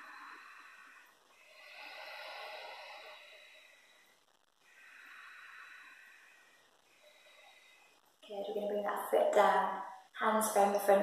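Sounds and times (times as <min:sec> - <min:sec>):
person breathing slowly and deeply: 0:00.0 - 0:08.3.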